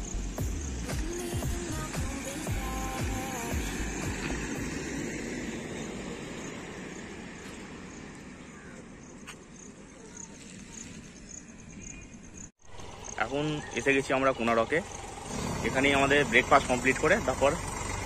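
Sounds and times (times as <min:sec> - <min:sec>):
vehicle and road noise: 0:00.0 - 0:18.0.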